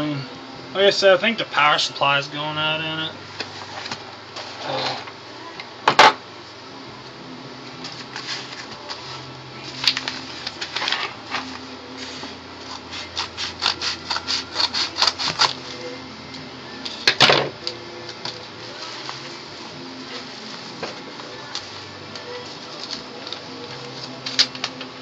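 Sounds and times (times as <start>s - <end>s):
sharp paper crackle: 7.9s - 11.6s
paper mailer crinkling: 7.9s - 11.7s
scratchy strokes: 12.0s - 15.8s.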